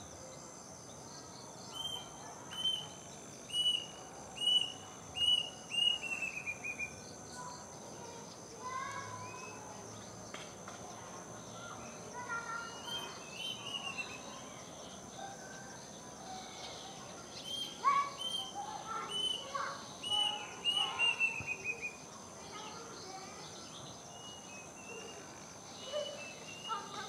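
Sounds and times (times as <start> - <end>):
cuckoo whistled song: 1.7 - 2.9, 3.5 - 6.9, 12.8 - 14.3, 17.4 - 22.0.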